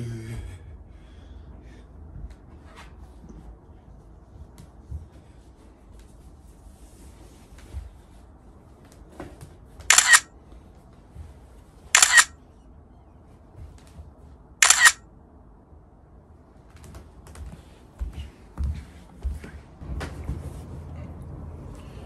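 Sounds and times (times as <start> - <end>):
camera shutter clicking: 9.9 - 10.3, 12.0 - 12.3, 14.6 - 15.0.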